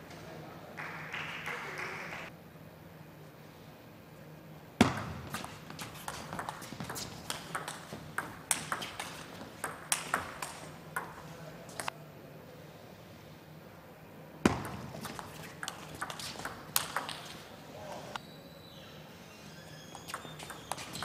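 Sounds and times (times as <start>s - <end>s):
table tennis ball clicks: 6.3s - 11.9s.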